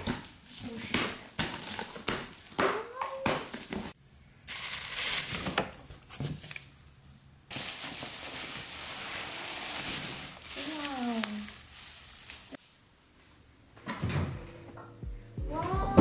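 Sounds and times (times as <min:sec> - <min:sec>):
plastic wrap crinkling: 0:04.5 - 0:06.7, 0:07.5 - 0:12.8.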